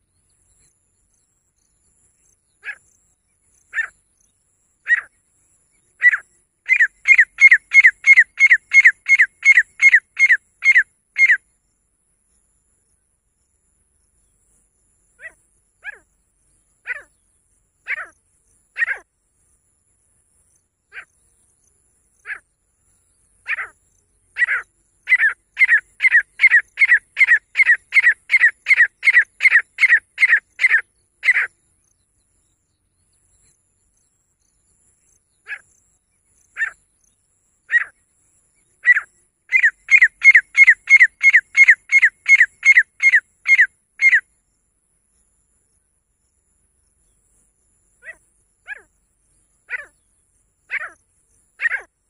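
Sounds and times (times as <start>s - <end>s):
francolin calling: 2.2s - 11.5s, 15.1s - 19.1s, 22.1s - 31.9s, 34.5s - 44.4s, 47.9s - 52.0s.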